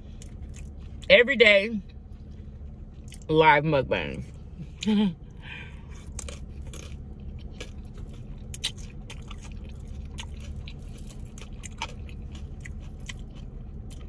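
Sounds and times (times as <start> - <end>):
person chewing: 0.0 - 1.1, 4.6 - 14.0
low hum: 0.0 - 14.0.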